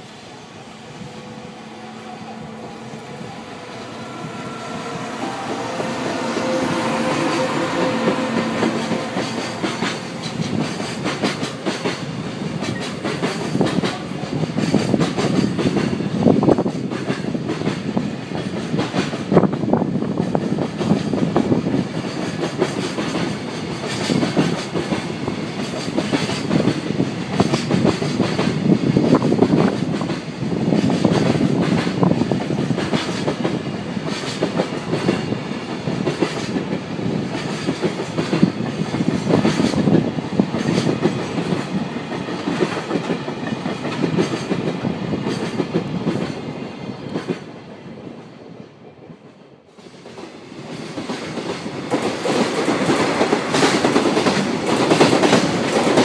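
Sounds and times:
train wheels clattering over rail joints: 8.2 - 46.4, 50.8 - 56.0.

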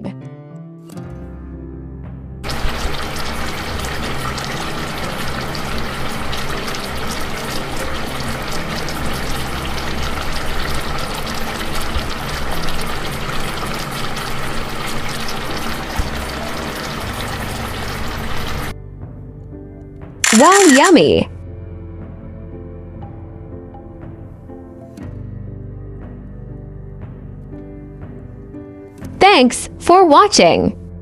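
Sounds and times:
chicken sizzling in oil: 2.4 - 18.7.

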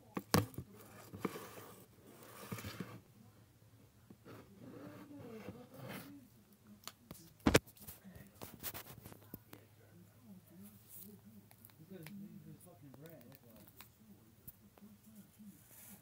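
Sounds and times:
phone rustling against fabric: 0.4 - 3.0, 7.5 - 9.3.

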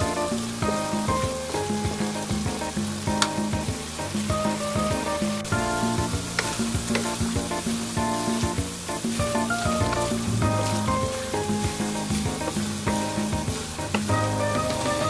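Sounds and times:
melodic background music: 0.0 - 15.0
vegetables sizzling in a wok: 5.4 - 15.0.

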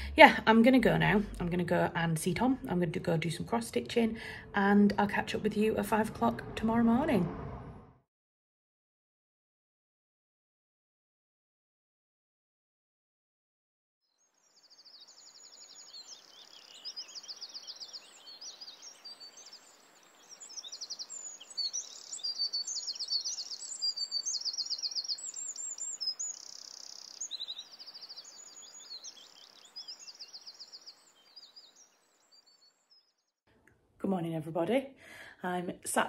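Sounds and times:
songbirds trilling and chirping: 14.2 - 33.4.

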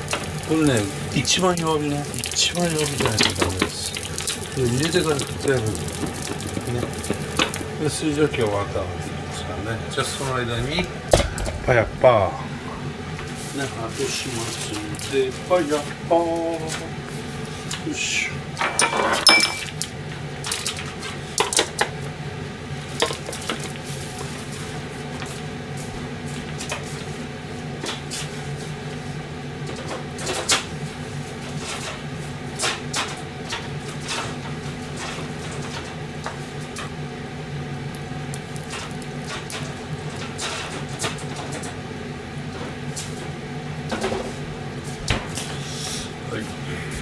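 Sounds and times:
steady low hum: 0.0 - 47.0
dishes clinking: 18.6 - 19.8.

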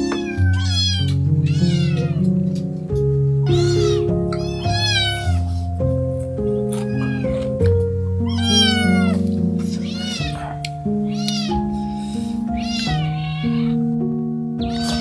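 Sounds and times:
cat meowing: 0.0 - 2.4, 3.4 - 5.6, 6.5 - 11.8, 12.5 - 14.0, 14.6 - 15.0
slow background music: 0.0 - 15.0.

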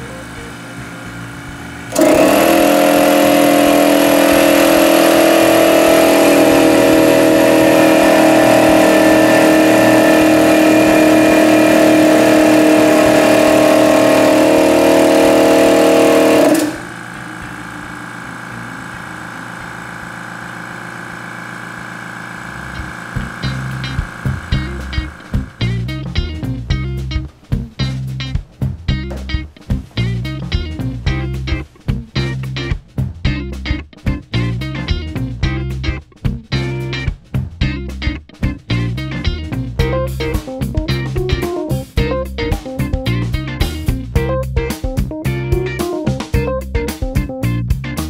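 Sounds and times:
loud air compressor pump drone: 0.0 - 25.8
quiet air compressor hum: 0.0 - 26.3.

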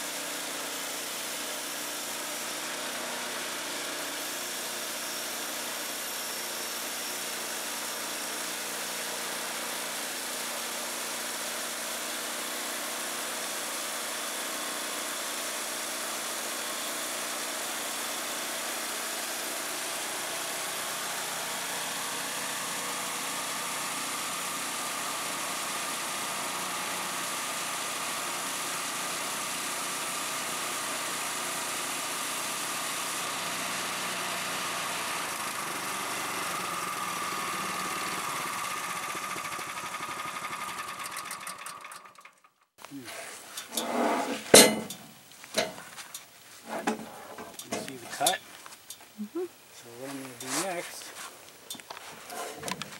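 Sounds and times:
small gas engine drone: 0.0 - 44.4
saw blade hissing in wood: 42.9 - 45.0, 49.8 - 51.3.

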